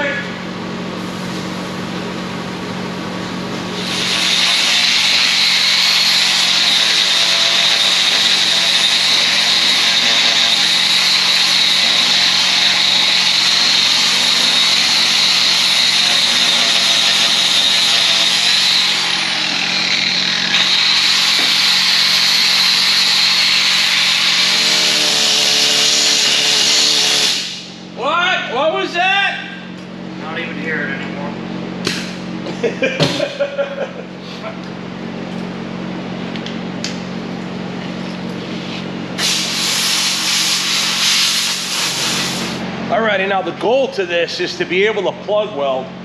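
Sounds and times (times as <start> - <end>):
grinder whining on steel: 3.7 - 27.8.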